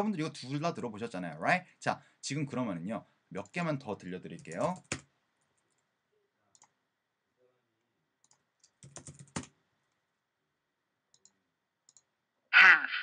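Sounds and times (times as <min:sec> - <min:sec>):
typing on computer keyboard: 0:04.4 - 0:05.1, 0:08.2 - 0:09.6.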